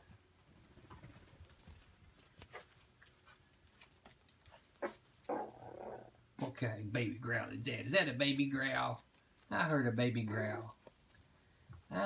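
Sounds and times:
puppies' paws clicking and scuffing: 0.0s - 5.6s, 8.1s - 12.0s.

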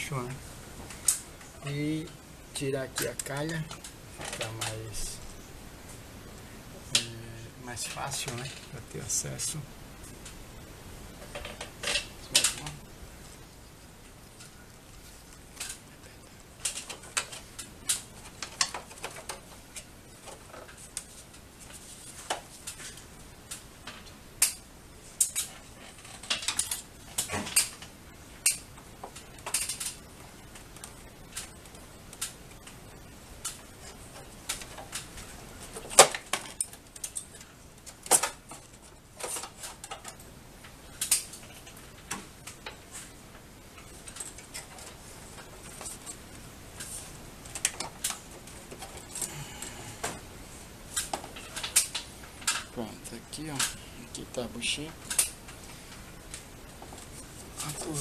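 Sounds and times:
plastic and metal parts clattering: 25.2s - 27.9s, 28.5s - 30.0s.

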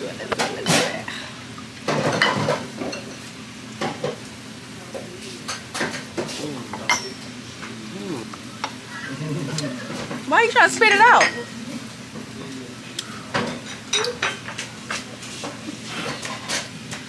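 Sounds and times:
glassware and utensils clinking: 1.9s - 4.2s, 5.5s - 7.3s, 11.1s - 11.6s, 13.3s - 15.0s.

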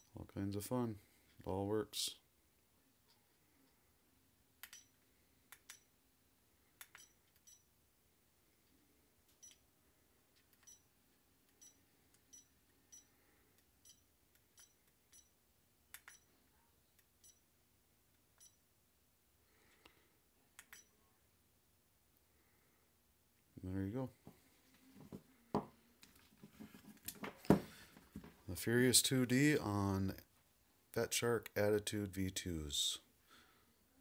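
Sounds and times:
sharp clicks: 4.6s - 4.9s, 15.9s - 16.2s
short high-pitched beeps: 6.9s - 7.6s.

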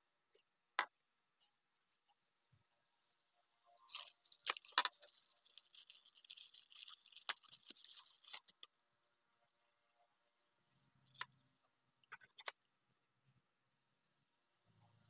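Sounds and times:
plastic bags crinkling: 3.9s - 8.6s.

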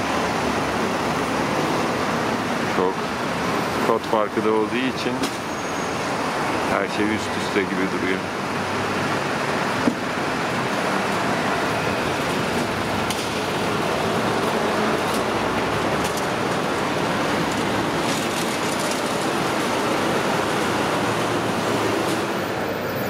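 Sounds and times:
city traffic noise: 0.0s - 23.0s.

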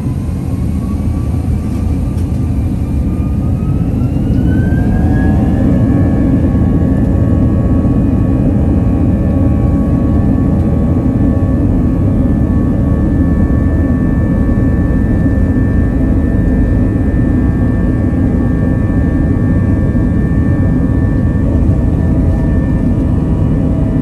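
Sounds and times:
jet engines rumbling in cabin: 0.0s - 24.0s.

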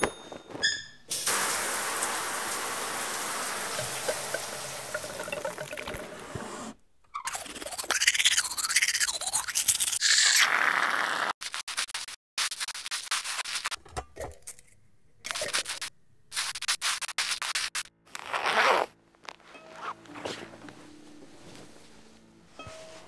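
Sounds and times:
zipper drawn: 18.1s - 20.6s
soft music with low notes: 18.2s - 23.0s.

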